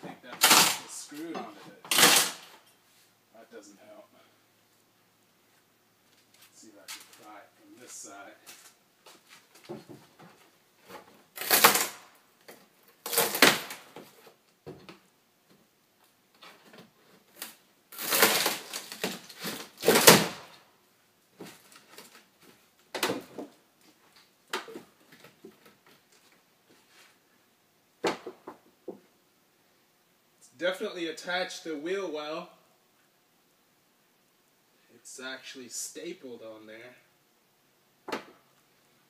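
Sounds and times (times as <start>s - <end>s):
wall paneling cracking and tearing: 0.4s - 1.0s, 1.9s - 2.5s, 11.3s - 14.3s, 17.2s - 20.6s.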